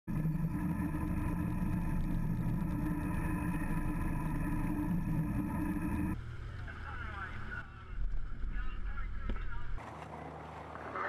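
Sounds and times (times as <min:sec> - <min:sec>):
outboard engine running: 0:00.0 - 0:06.2
wind: 0:06.2 - 0:11.0.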